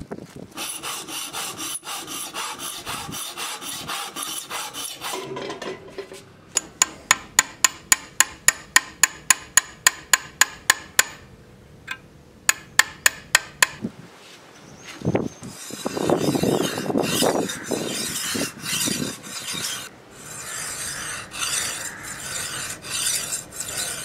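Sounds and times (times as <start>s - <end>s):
file rasping over steel blade: 0.6s - 5.7s, 15.4s - 24.0s
chisel tapping metal: 5.0s - 11.2s, 11.9s - 13.8s.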